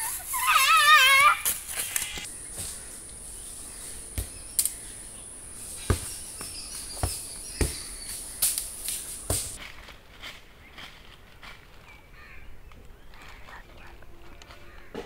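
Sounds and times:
insects chirring: 0.0 - 9.6
footsteps on dry leaves: 0.0 - 15.0.

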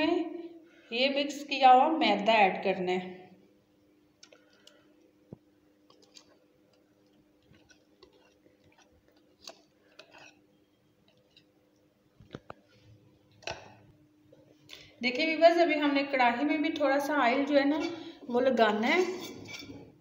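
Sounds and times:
faint steady hum: 0.0 - 20.0
whisk scraping a bowl: 9.5 - 10.4, 19.0 - 19.9.

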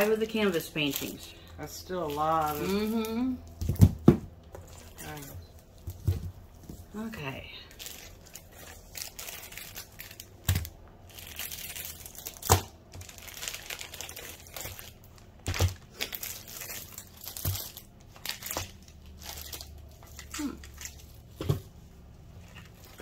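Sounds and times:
plastic bags and paper crinkling: 0.0 - 3.8, 4.5 - 23.0
items knocking on table: 3.6 - 4.4.

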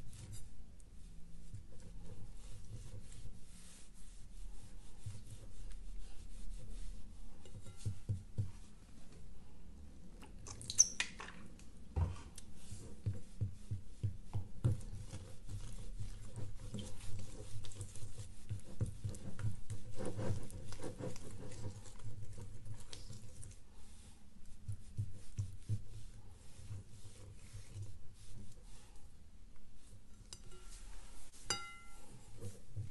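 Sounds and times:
slime stirred with sticky squelches: 0.0 - 32.9.

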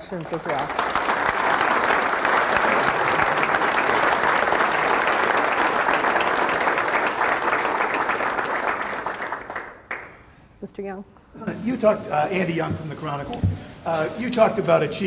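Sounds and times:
audience applauding: 0.0 - 10.2.

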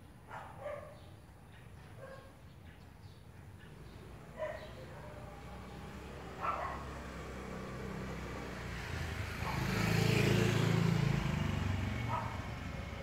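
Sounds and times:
vehicle passing by: 3.6 - 13.0.

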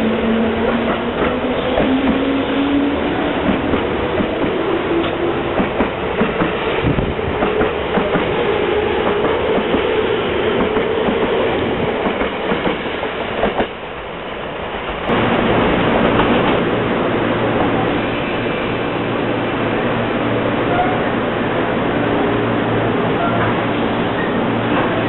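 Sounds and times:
train wheels clacking on rail joints: 0.6 - 2.4, 3.4 - 8.4, 12.0 - 12.8, 13.4 - 13.8.

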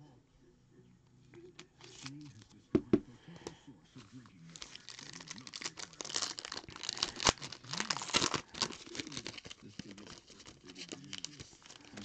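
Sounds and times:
foil wrapper tearing and crinkling: 4.5 - 12.0.

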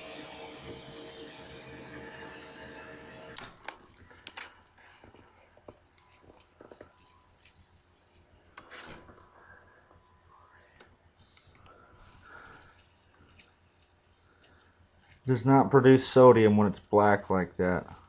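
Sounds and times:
low steady hum: 0.0 - 4.2
sharp clicks and pops: 3.4 - 9.3.

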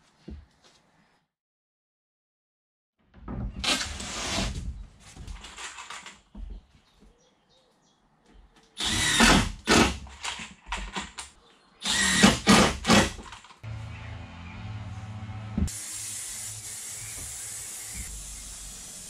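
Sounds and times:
cordless drill running: 8.8 - 9.9, 11.8 - 13.0.

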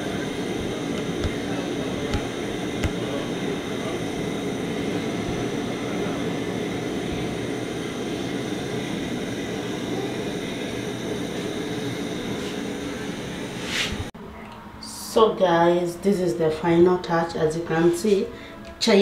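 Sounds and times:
chai frothing at a boil: 0.0 - 14.1
gas stove burner running: 0.0 - 14.1.

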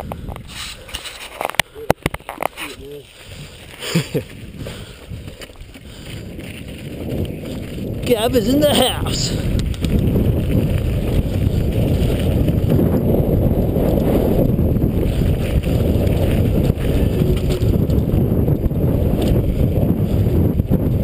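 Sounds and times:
bike rattling and clicking: 0.0 - 21.0
bike tyres rumbling on gravel: 0.0 - 21.0
wind buffeting microphone: 0.0 - 21.0.

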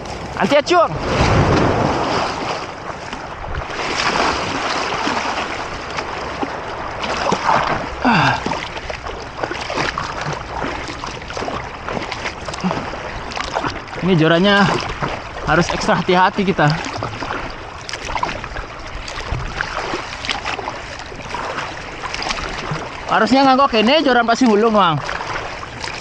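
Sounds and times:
wind on microphone: 0.0 - 7.9, 16.8 - 20.1
sea water splashing: 0.0 - 26.0.

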